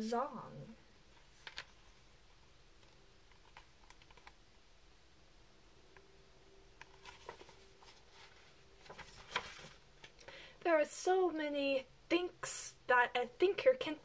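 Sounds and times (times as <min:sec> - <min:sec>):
paper pages rustling: 0:06.8 - 0:10.2.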